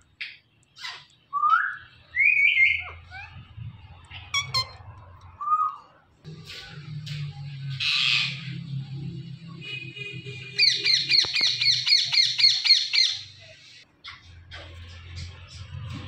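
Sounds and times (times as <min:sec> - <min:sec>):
parakeet harsh squawk: 0:04.2 - 0:04.9.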